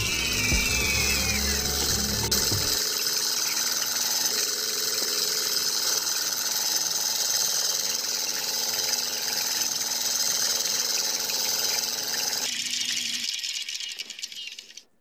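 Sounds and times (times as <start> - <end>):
model engine rattling: 2.4 - 14.8.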